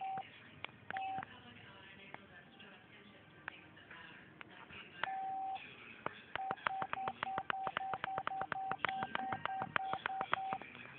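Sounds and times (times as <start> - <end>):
keypad beeps: 0.0 - 0.3, 0.9 - 1.3, 5.0 - 5.6, 6.4 - 10.7
keypad clicks: 0.9 - 1.3, 6.4 - 10.8.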